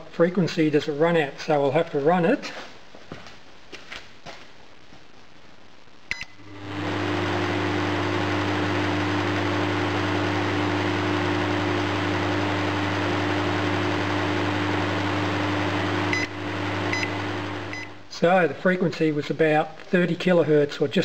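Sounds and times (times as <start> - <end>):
keypad beep: 6.1 - 6.4
microwave humming: 6.2 - 18.1.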